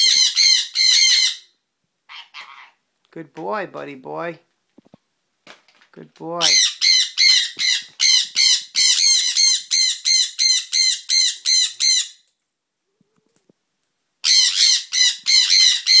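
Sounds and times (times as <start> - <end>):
parrot screaming shrill calls: 0.0 - 2.8, 6.4 - 12.3, 14.2 - 16.0.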